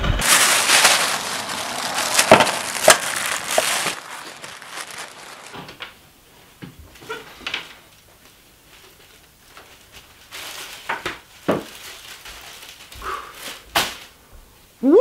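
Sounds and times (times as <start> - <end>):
plastic bag rustling: 0.0 - 5.9, 8.7 - 14.1.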